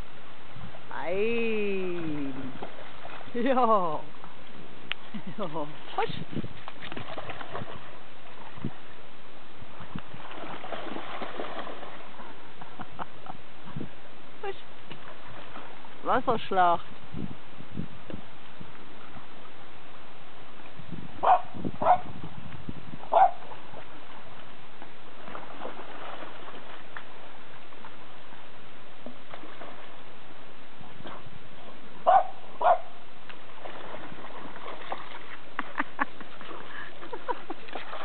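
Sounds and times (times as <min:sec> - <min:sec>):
shallow stream flowing: 0:00.0 - 0:38.0
dog splashing through water: 0:01.9 - 0:03.9, 0:05.8 - 0:08.7, 0:10.1 - 0:12.4, 0:25.2 - 0:27.2, 0:33.5 - 0:38.0
dog barking: 0:21.2 - 0:22.1, 0:23.1 - 0:23.4, 0:32.0 - 0:33.0.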